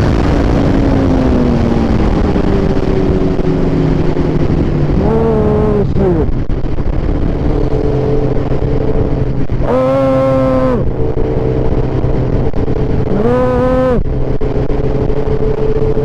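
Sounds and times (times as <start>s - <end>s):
road and wind noise: 0.0s - 16.0s
vehicle engine running: 0.0s - 16.0s
pitched tone: 7.5s - 16.0s.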